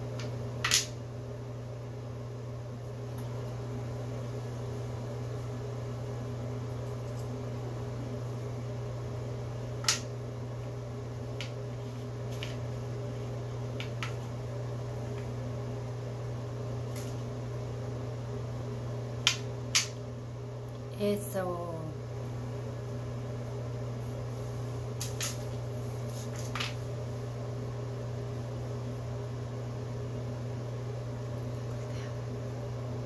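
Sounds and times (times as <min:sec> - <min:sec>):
low mechanical hum: 0:00.0 - 0:33.0.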